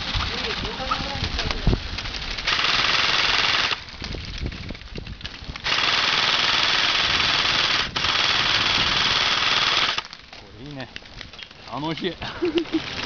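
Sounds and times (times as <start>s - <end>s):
airsoft rifle full-auto bursts: 2.4s - 3.8s, 5.6s - 10.1s.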